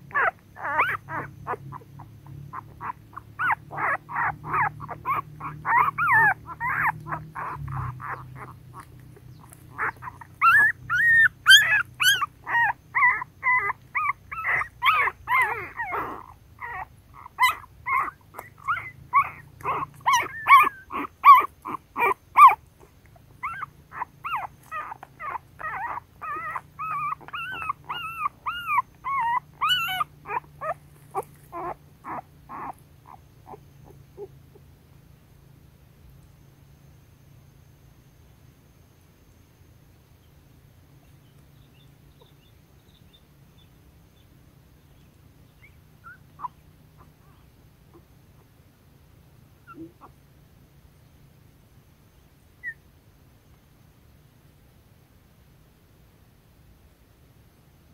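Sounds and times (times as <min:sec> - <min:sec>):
puppies whimpering and squeaking: 0:00.0 - 0:34.4, 0:45.6 - 0:48.0, 0:49.6 - 0:50.2.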